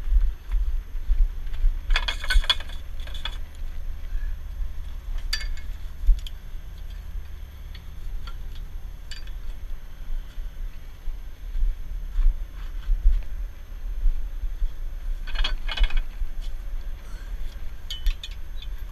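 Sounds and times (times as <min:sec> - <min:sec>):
steady low rumble: 0:00.0 - 0:18.9
chains rattling and clinking: 0:01.9 - 0:03.4.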